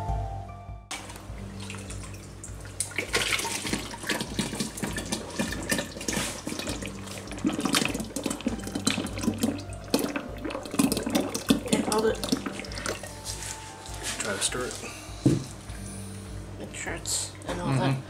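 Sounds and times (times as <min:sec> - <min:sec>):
thick slurry pouring and splattering: 0:02.8 - 0:14.8.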